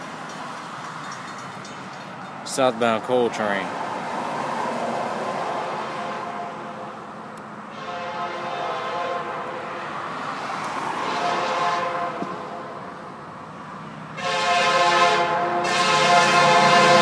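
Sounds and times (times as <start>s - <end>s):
distant locomotive air horn: 5.8s - 7.1s, 7.7s - 12.9s, 14.1s - 17.0s.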